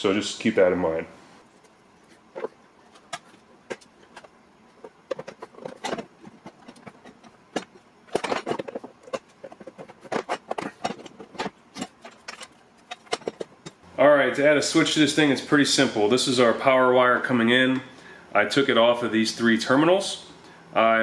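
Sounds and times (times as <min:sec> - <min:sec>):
small metal parts clicking and rattling: 0:02.3 - 0:13.8.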